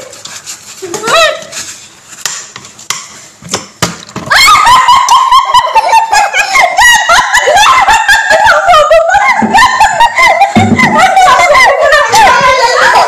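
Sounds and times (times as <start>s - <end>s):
high-pitched giggling and laughter: 4.4s - 13.0s.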